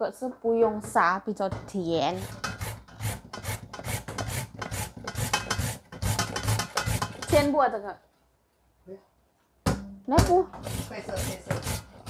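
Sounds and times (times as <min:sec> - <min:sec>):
carrot grating on hand grater: 0:02.1 - 0:07.6, 0:10.5 - 0:12.0.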